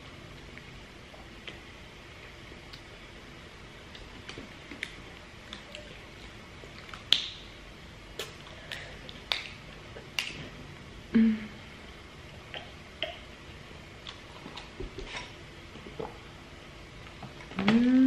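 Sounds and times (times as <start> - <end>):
mouth smacks: 8.1 - 10.4.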